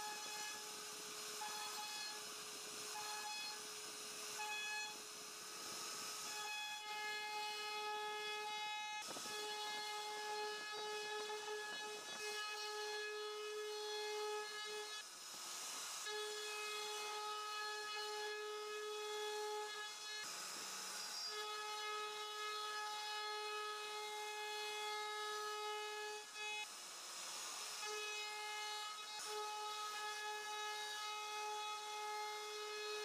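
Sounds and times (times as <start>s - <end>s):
router spindle whining: 0.0s - 15.0s, 20.2s - 23.1s
rasping noise of carving: 0.0s - 33.0s.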